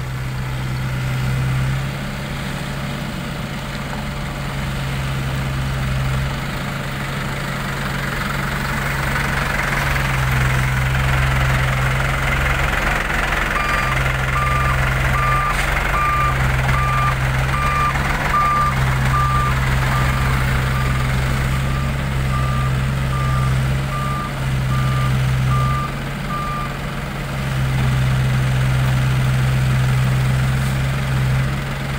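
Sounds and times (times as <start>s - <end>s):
diesel truck engine running: 0.0s - 31.9s
truck reversing alarm beeping: 13.4s - 26.8s.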